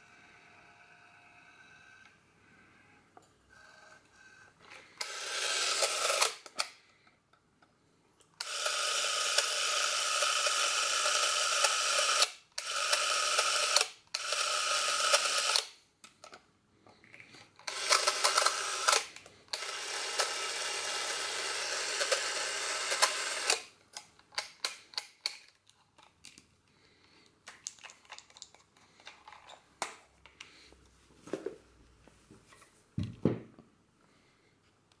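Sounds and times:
film camera motor running: 0:05.0 - 0:06.5, 0:08.4 - 0:15.7, 0:17.7 - 0:23.6.

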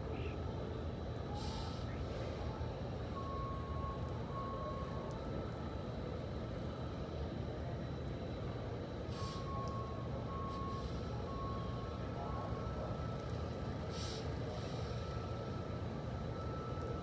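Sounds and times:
reversing alarm beeps: 0:01.2 - 0:17.0
short hiss: 0:09.1 - 0:09.5.

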